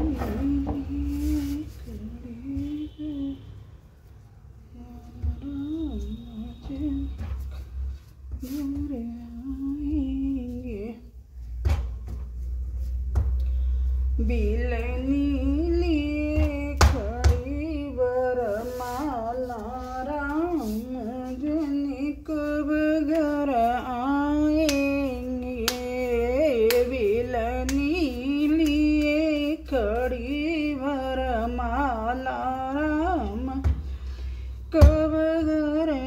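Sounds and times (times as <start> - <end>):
woman singing unaccompanied: 0.0 - 3.5, 4.7 - 7.6, 8.3 - 11.2, 14.2 - 34.0, 34.7 - 36.0
hands slapping dough: 24.6 - 24.9, 25.6 - 26.0.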